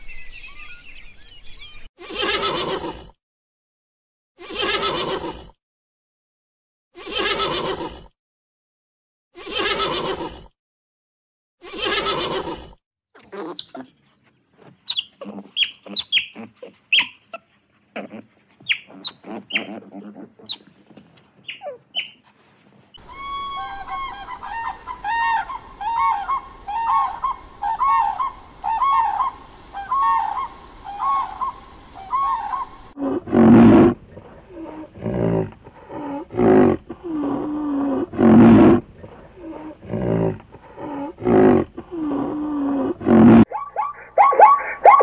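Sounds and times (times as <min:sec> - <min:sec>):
high rising and falling calls: 0:23.0 - 0:33.0, 0:43.5 - 0:45.0
loud deep calls: 0:23.0 - 0:35.3.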